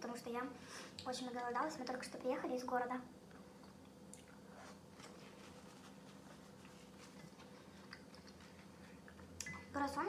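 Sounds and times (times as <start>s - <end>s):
quiet eating sounds: 3.2s - 9.8s.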